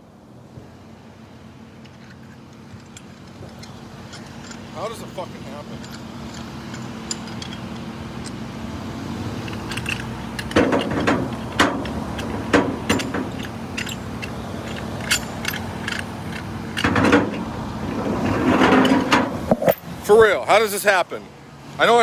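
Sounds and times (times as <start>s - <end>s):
vehicle engine idling: 0.0s - 18.0s
metal chain clanking and jingling: 1.8s - 8.4s, 9.4s - 17.5s.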